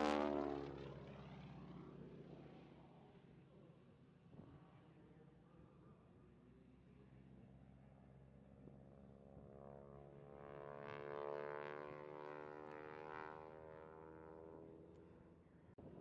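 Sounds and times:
biplane engine and propeller droning: 0:09.5 - 0:15.7.

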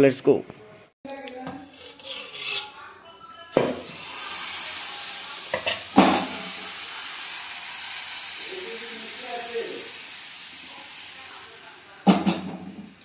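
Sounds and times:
batter sizzling on hot pan: 0:03.6 - 0:13.0
utensils knocking: 0:12.0 - 0:13.0.

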